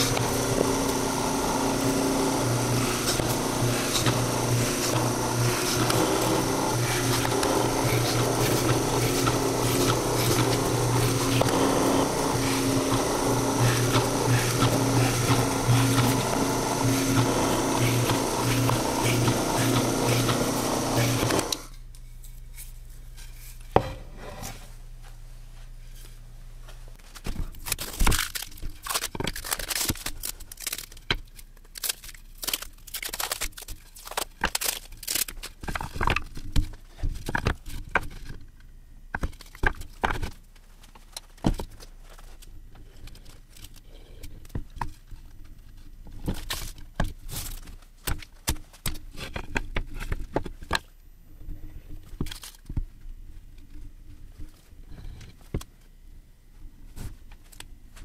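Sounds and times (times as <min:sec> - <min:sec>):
paper tearing and crinkling: 0:00.0 - 0:21.7, 0:27.1 - 0:35.9.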